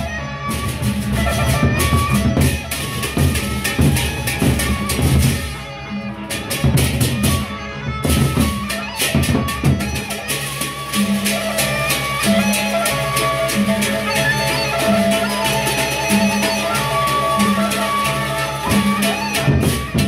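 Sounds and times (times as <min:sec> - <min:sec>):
hand cymbals clashing: 0:00.1 - 0:20.0
large barrel drums beaten: 0:00.5 - 0:05.4, 0:10.9 - 0:20.0.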